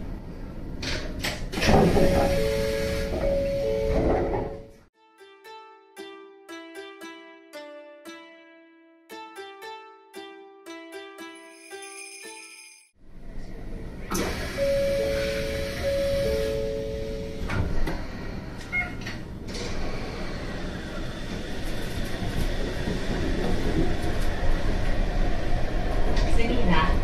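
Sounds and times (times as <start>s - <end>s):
monorail car running noise: 0.0s - 4.9s, 13.0s - 27.0s
sliding doors shutting: 0.7s - 4.8s, 14.0s - 26.4s
two-tone door chime: 2.0s - 4.8s, 14.5s - 17.8s
plucked music notes: 3.4s - 11.8s.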